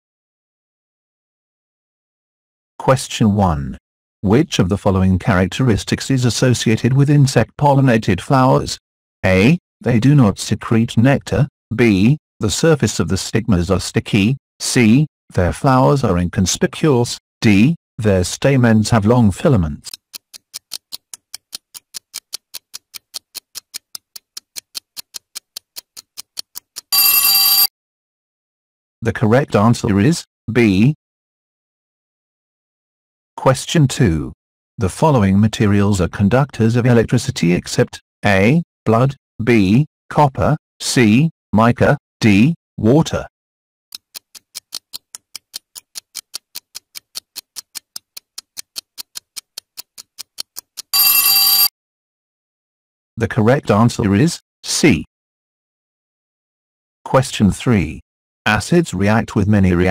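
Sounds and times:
timer ticking: 19.9s - 27.7s, 44.0s - 51.7s.

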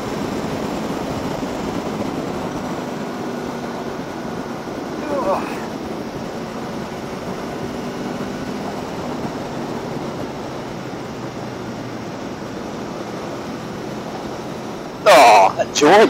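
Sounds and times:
faint motorcycle engine drone: 0.0s - 16.0s
road noise: 0.0s - 16.0s.

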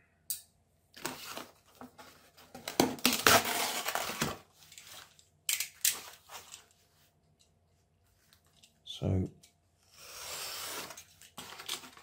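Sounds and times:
cardboard rustling and scraping: 10.0s - 12.0s.

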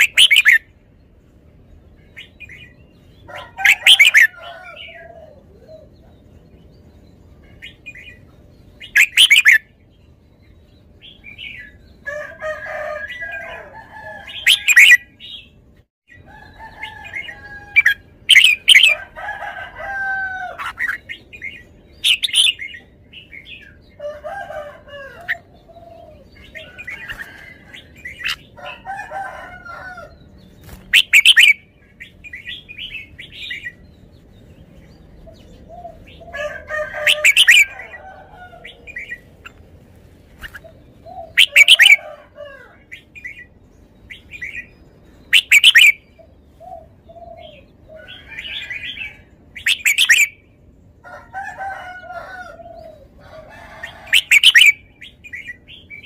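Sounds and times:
bulbul singing: 0.0s - 0.9s, 1.6s - 12.1s, 12.7s - 19.2s, 20.4s - 39.6s, 40.4s - 50.9s, 53.9s - 56.0s
soft bird calls: 10.4s - 50.5s.

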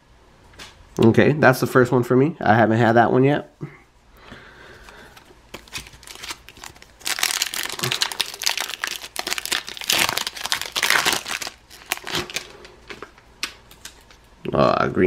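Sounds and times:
foil wrapper tearing and crinkling: 5.5s - 14.2s.

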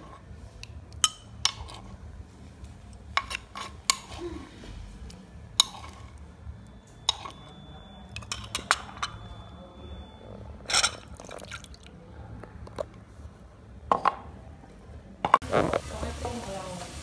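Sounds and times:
bowl and spoon clinking: 0.0s - 2.0s, 3.2s - 4.2s, 5.6s - 6.2s, 6.8s - 9.5s, 10.6s - 11.9s.

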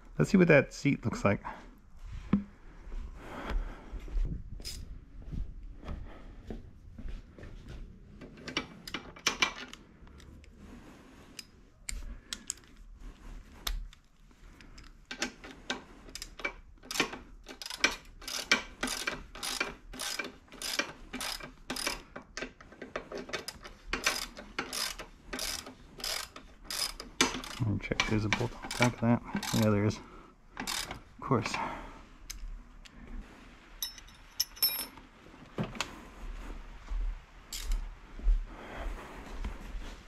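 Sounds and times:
socket ratchet clicking: 16.1s - 22.1s, 23.3s - 27.6s, 28.7s - 29.8s, 30.6s - 31.0s.

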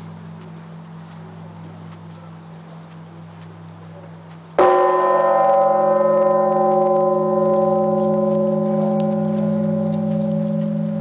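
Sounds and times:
large church bell stroke: 4.6s - 11.0s.

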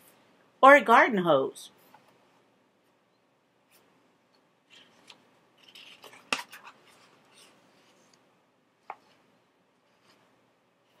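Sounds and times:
book page turning: 4.7s - 8.2s.

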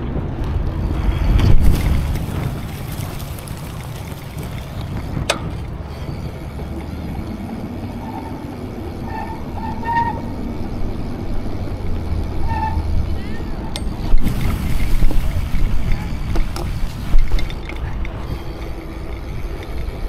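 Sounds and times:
wind on microphone: 0.0s - 9.7s, 12.7s - 19.7s
road rumble: 0.0s - 20.0s.

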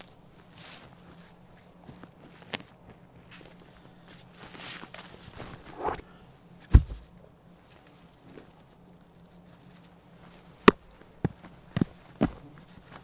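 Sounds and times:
heavy thud: 6.7s - 7.1s
quick knocks: 6.7s - 7.1s.

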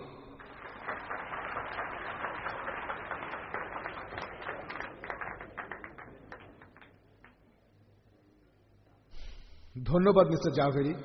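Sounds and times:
audience applauding: 0.4s - 7.5s.

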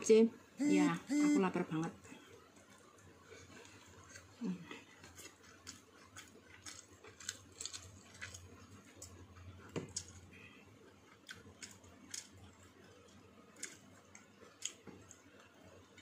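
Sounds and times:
mouth sounds of eating: 2.4s - 8.8s.

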